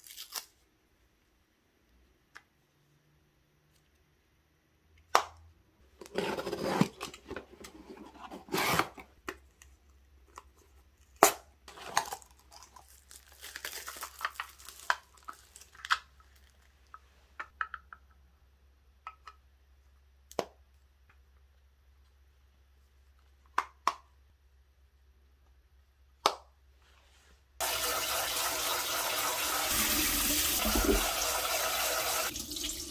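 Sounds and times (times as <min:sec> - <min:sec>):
cardboard box opening: 0:06.0 - 0:09.1
plastic film crinkling: 0:11.9 - 0:16.7.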